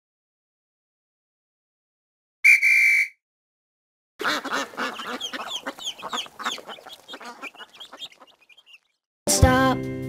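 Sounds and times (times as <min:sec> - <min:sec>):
baby chick peeping: 0:04.2 - 0:09.0.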